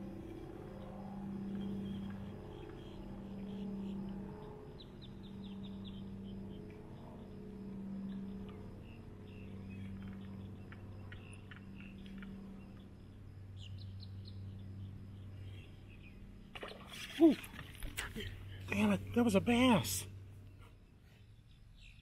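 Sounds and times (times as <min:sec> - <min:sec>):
low hum: 0:00.0 - 0:22.0
small birds chirping: 0:17.2 - 0:22.0.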